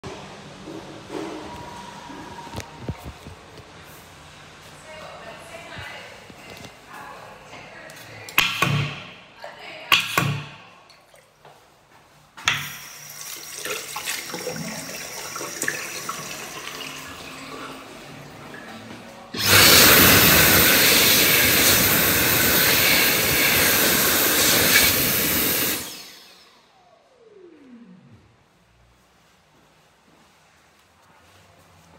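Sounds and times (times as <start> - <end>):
hand dryer blowing: 12.5 - 18.0, 19.4 - 26.5
water running from tap: 12.5 - 18.2, 19.4 - 26.0.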